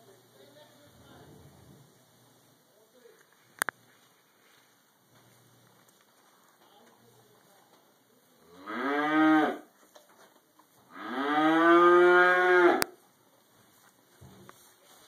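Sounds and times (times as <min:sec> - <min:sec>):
cow mooing: 0:08.5 - 0:09.7, 0:10.9 - 0:12.9.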